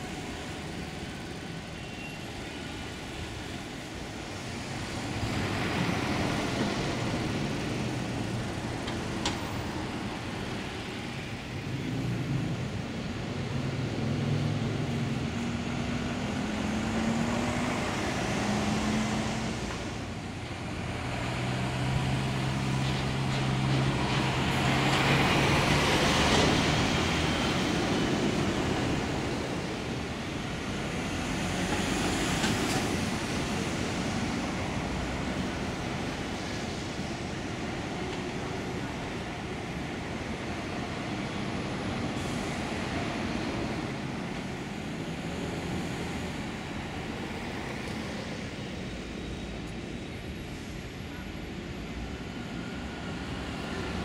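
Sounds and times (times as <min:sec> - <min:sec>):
buses passing: 0:00.0 - 0:54.0
cars and lorries passing: 0:00.0 - 0:54.0.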